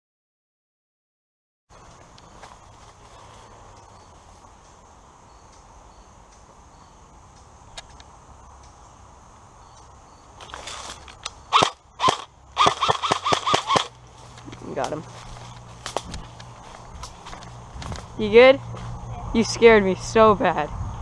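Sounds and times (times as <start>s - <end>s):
airsoft rifle shots: 11.5s - 14.0s.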